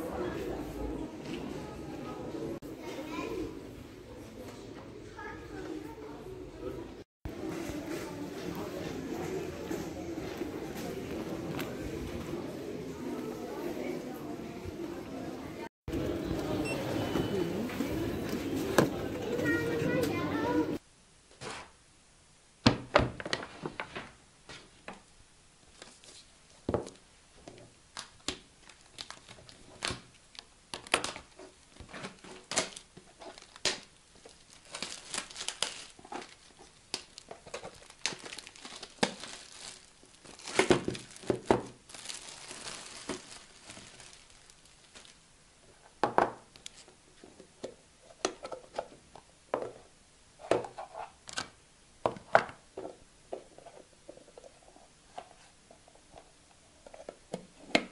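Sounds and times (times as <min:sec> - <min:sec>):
paper and plastic rustling: 0:25.7 - 0:45.2.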